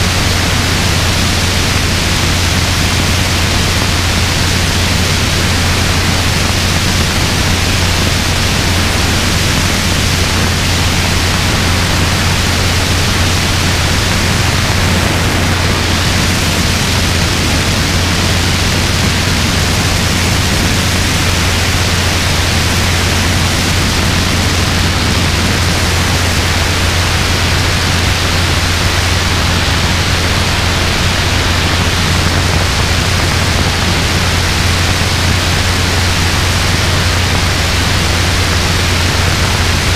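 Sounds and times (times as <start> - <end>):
helicopter rotor drone: 0.0 - 39.9
wind on microphone: 0.0 - 39.9.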